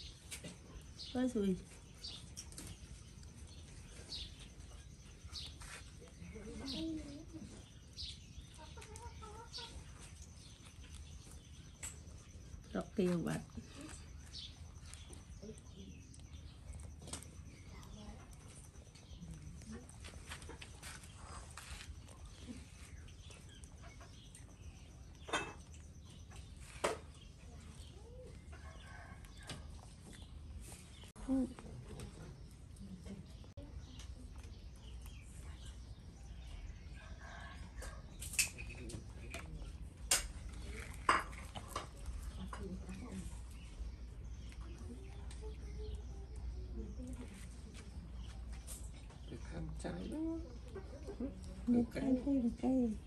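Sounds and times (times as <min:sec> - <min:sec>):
chickens clucking: 0:07.4 - 0:12.2, 0:20.2 - 0:31.1, 0:47.7 - 0:52.8.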